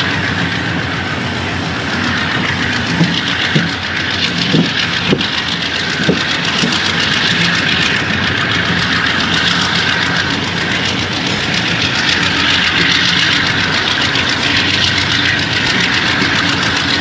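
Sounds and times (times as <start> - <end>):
locomotive engine humming: 0.0 - 17.0
train wheels rushing on rails: 0.0 - 17.0.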